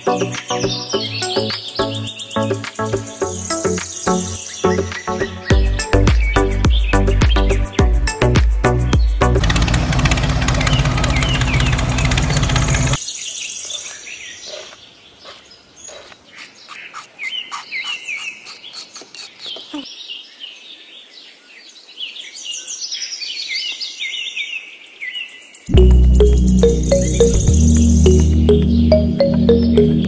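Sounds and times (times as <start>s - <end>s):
small birds chirping: 0.3s - 25.7s
loud music: 25.7s - 30.0s.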